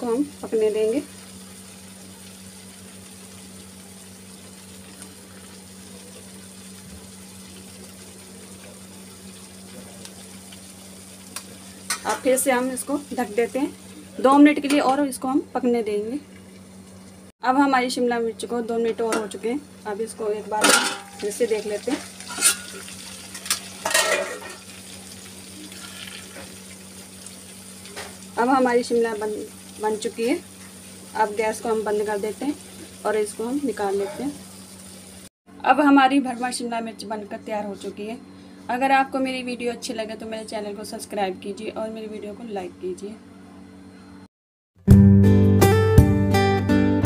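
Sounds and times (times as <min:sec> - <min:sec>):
food sizzling in hot oil: 0:00.0 - 0:35.3
metal spatula scraping pan: 0:22.2 - 0:22.8, 0:23.4 - 0:24.6.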